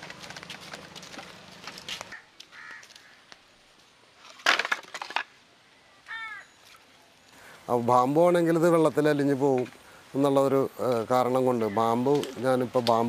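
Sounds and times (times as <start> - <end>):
footsteps on wooden planks: 0.0 - 3.0
crunching clatter of bamboo: 0.0 - 3.1, 4.2 - 5.3, 12.0 - 13.0.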